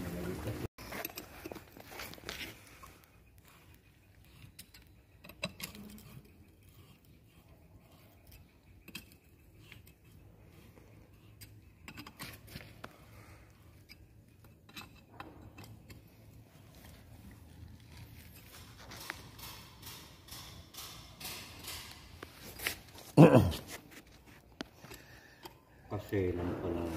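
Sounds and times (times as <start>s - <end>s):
steel parts clinking: 18.3s - 22.9s.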